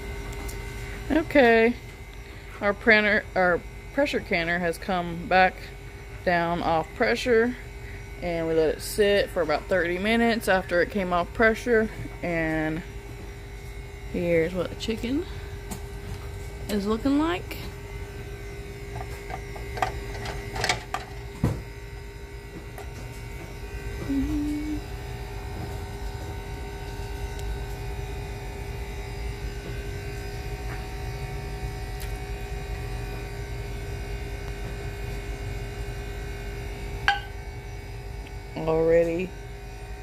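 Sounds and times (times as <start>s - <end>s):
steady electrical hum: 0.0s - 40.0s.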